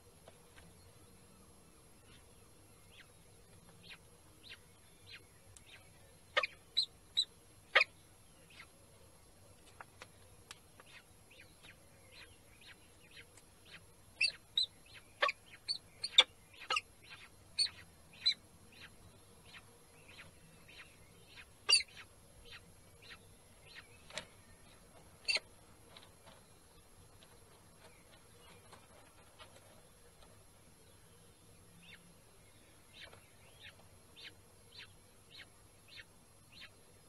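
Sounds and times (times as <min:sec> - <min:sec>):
chick cheeping: 0:14.2 - 0:18.9.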